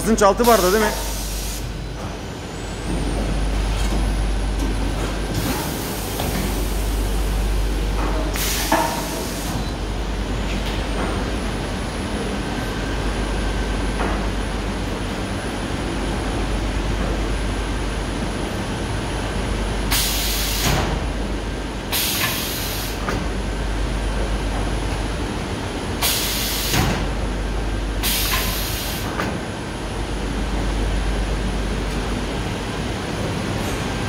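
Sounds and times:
compressed air hissing: 0.4s - 1.7s.

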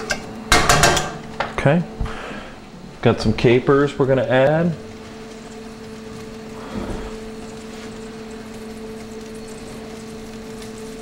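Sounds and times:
steady low hum: 0.0s - 11.0s
sauce simmering in a pan: 4.3s - 11.0s.

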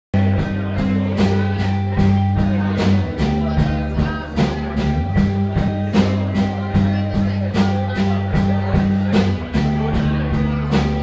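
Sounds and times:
rock band playing live: 0.1s - 11.0s.

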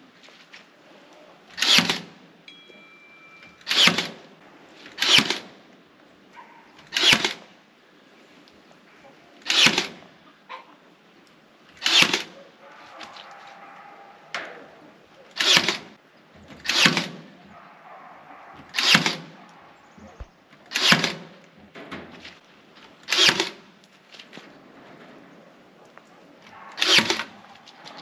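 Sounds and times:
staple gun firing: 11.8s - 12.4s, 16.6s - 17.2s, 18.8s - 19.3s, 20.7s - 21.3s, 23.1s - 23.6s.

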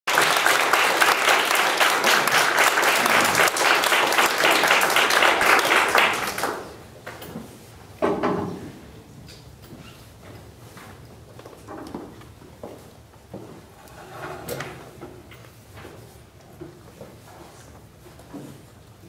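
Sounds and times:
audience applause: 0.1s - 6.8s.

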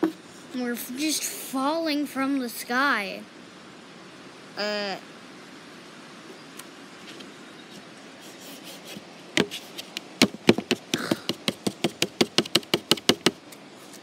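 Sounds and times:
plastic knife tapping on plate: 10.2s - 13.4s.

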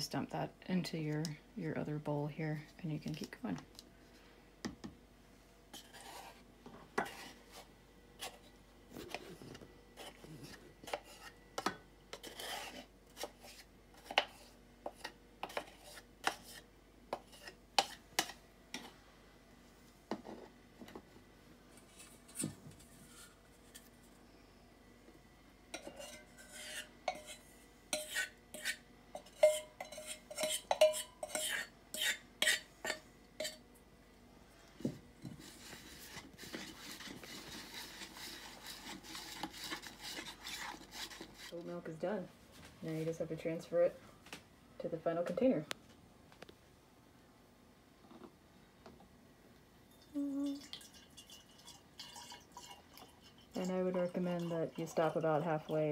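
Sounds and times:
spoon scraping in a strainer: 5.7s - 6.4s, 7.0s - 8.5s, 10.0s - 11.4s, 12.1s - 18.9s, 25.8s - 33.6s, 35.2s - 41.7s.

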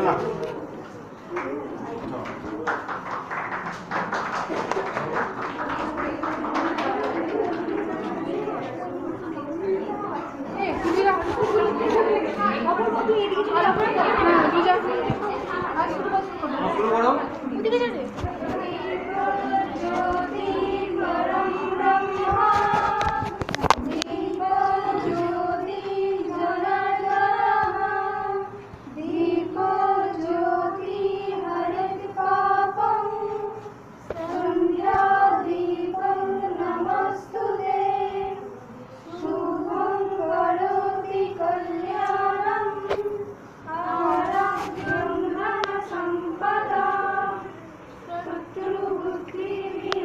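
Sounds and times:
women singing in unison: 10.6s - 16.7s, 18.1s - 50.0s.

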